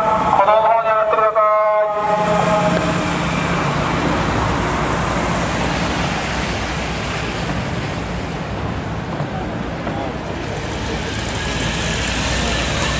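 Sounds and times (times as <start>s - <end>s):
loudspeaker announcement: 0.0s - 4.0s
road noise: 0.0s - 12.9s
vehicle engine hum: 0.0s - 12.9s.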